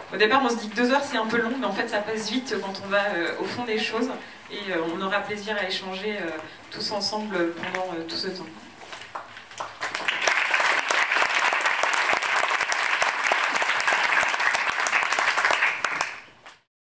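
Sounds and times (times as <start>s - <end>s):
audience applauding: 9.1s - 16.6s.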